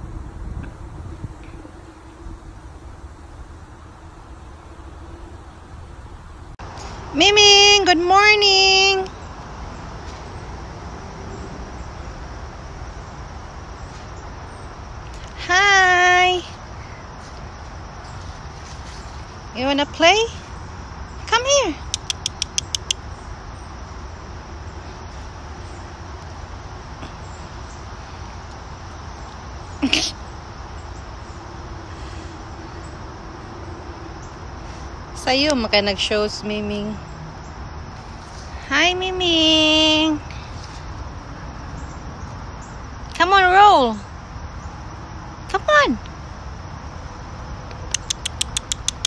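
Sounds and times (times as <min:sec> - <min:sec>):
wind on microphone: 0:00.0 - 0:07.1
low wind rumble: 0:00.0 - 0:48.0.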